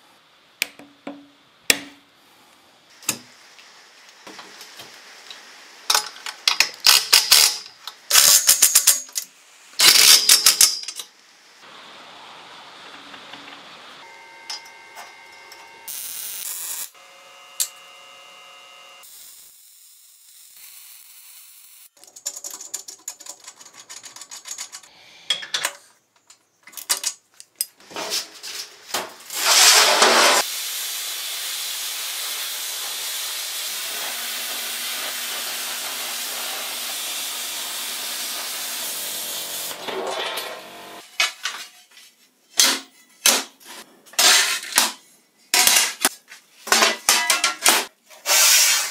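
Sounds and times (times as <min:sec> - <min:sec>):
air hiss: 0:29.4 - 0:39.7.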